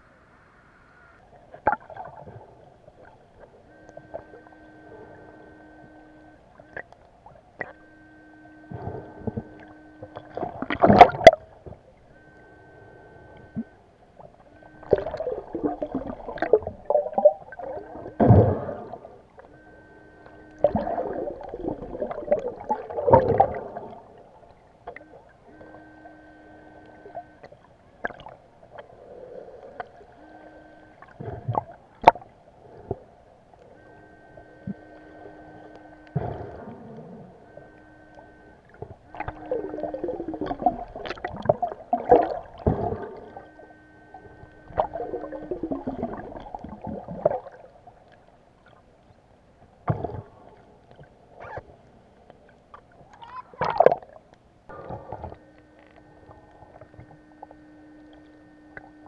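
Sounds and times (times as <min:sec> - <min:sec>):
steady hum: 0:00.0 - 0:59.0
underwater churning and gurgling: 0:00.1 - 0:59.0.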